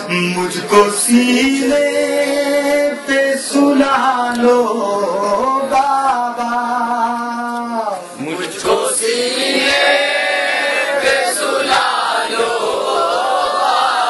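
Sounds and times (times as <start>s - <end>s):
men singing in chorus: 0.0s - 7.6s, 8.5s - 14.0s
man singing into a microphone: 0.0s - 9.0s.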